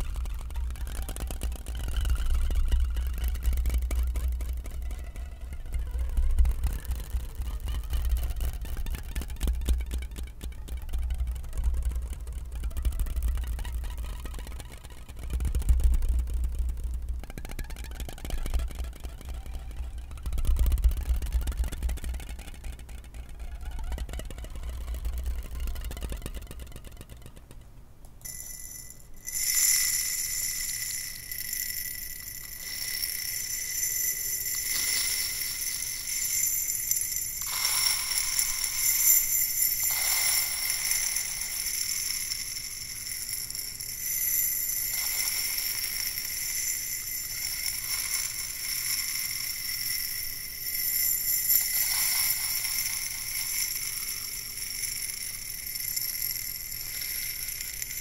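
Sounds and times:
high ringing tones: 28.2 - 58.0.

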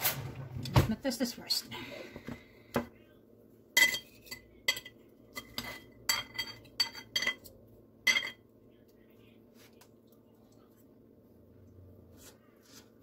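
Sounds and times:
fork clinking on ceramic plate: 3.8 - 7.5.

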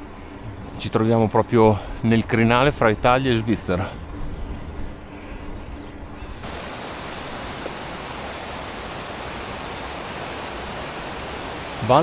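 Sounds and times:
steady rushing hiss: 6.4 - 12.0.

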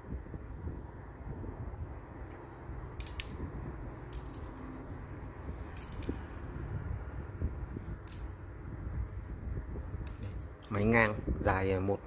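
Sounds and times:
fishing rod handling clicks: 3.0 - 3.4, 4.1 - 5.0, 5.6 - 6.2, 8.0 - 8.3, 10.0 - 10.9.

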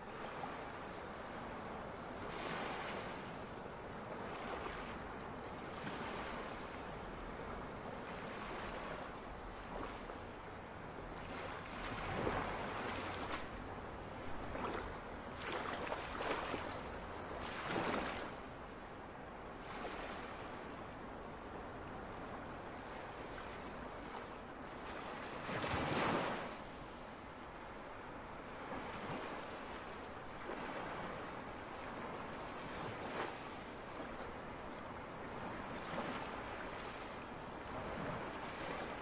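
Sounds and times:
ocean waves breaking: 14.2 - 18.4.

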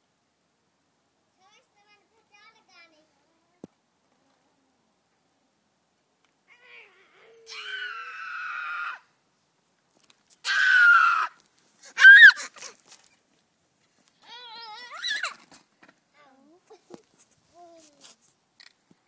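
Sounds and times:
young child shrieking: 6.5 - 9.1, 10.4 - 12.7, 14.2 - 15.4.

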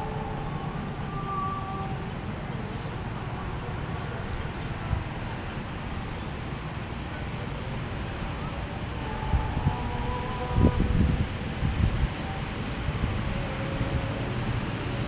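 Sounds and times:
faint tone: 0.0 - 4.2
distant diesel train rumbling: 0.0 - 15.0
wind buffeting microphone: 0.0 - 15.0.

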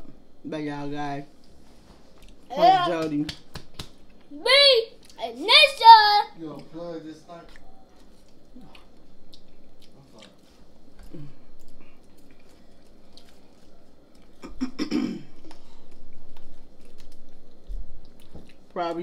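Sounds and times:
chewing crunchy fries: 7.4 - 14.8, 15.4 - 19.0.

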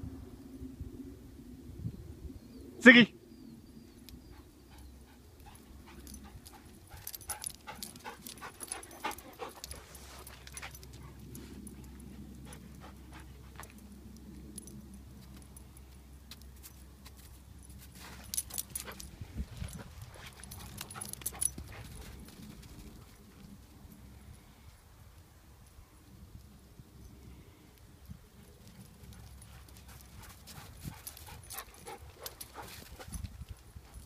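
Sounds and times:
dog collar tags jingling: 5.4 - 23.0, 28.5 - 34.0.

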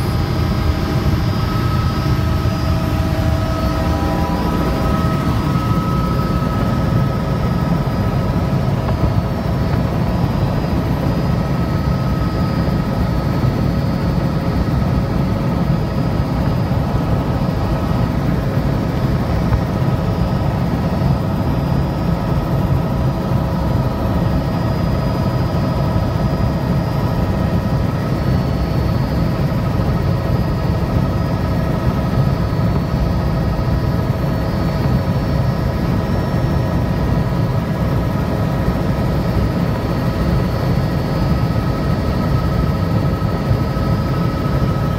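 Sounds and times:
faint whine: 0.0 - 21.6
helicopter rotor and engine drone: 0.0 - 44.9.

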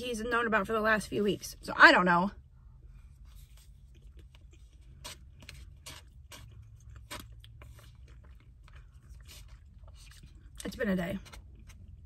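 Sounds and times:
low steady hum: 0.0 - 12.0
chewing and mouth sounds: 3.4 - 12.0.

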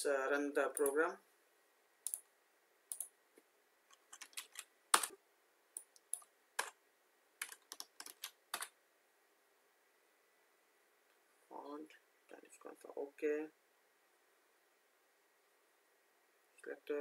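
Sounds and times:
keyboard keys clicking: 3.9 - 5.1, 6.0 - 6.8, 7.4 - 8.7.

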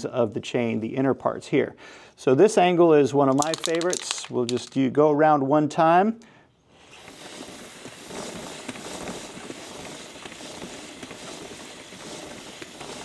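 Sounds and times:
aerosol can spraying: 6.8 - 13.0.

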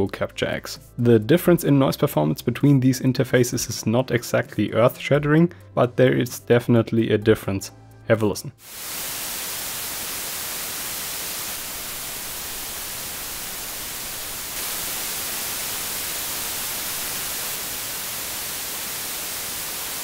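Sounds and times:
preamp noise hiss: 8.6 - 20.0.

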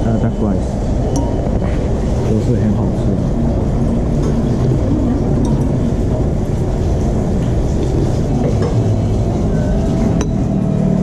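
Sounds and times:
loud low rumble: 0.6 - 11.0.

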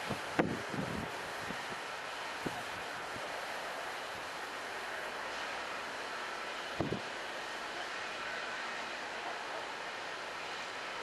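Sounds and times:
wind buffeting microphone: 0.0 - 3.3, 6.8 - 7.1
rushing wind: 0.0 - 11.0.

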